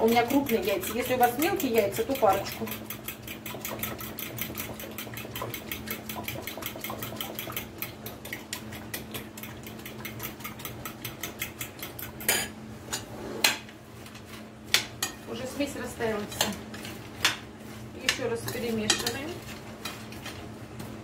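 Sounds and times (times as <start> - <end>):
fork whisking in glass bowl: 0.0 - 12.3, 18.0 - 20.4.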